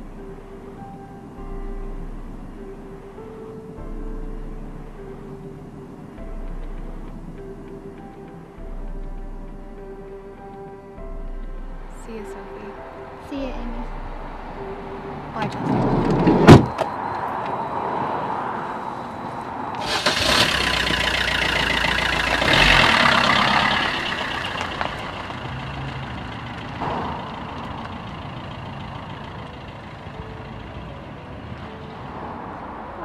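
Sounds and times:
van door slamming: 15.7 - 16.9
van engine driving off: 18.2 - 33.0.

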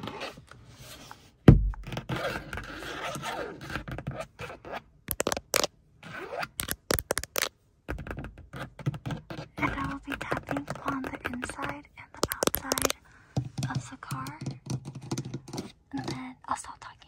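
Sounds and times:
fingernails scratching plastic: 0.0 - 1.2, 1.8 - 13.0, 13.6 - 16.2
loud thump: 1.5 - 1.8
sharp nail taps: 5.1 - 5.7, 6.6 - 7.5, 9.6 - 15.6.

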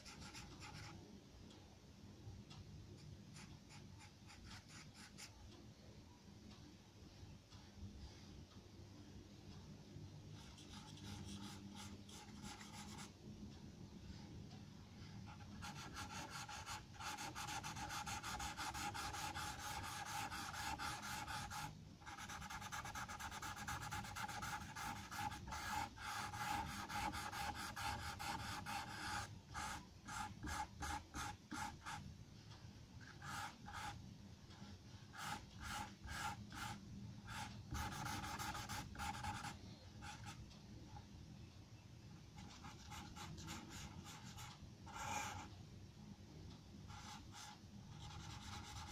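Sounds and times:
charcoal pencil scratching paper: 15.3 - 32.0, 35.1 - 40.4, 47.0 - 48.9.

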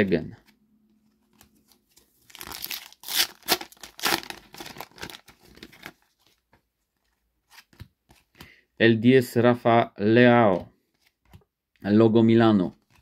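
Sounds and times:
card pack wrapper tearing and crinkling: 2.2 - 6.1.

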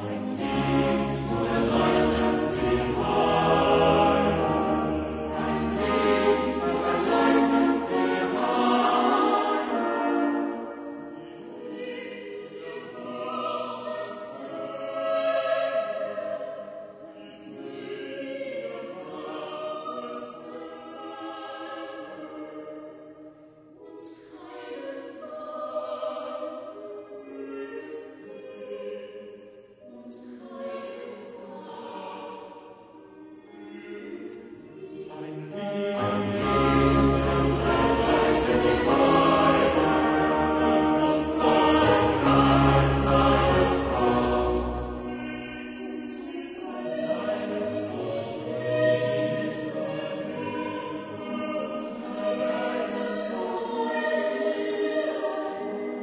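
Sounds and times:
choir singing slow held notes: 0.0 - 56.0.

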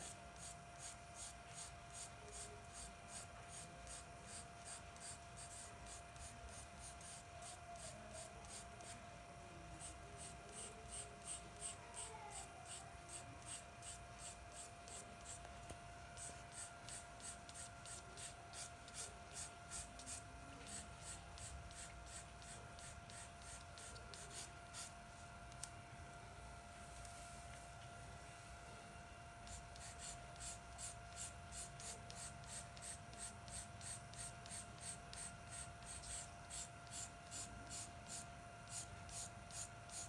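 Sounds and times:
faint steady hum: 0.0 - 40.0
pencil scratching on paper: 12.7 - 15.4.

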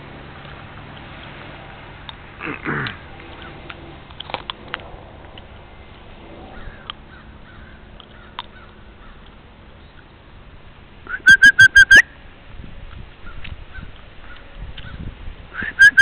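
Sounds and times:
animal call: 11.1 - 12.0, 15.6 - 16.0.

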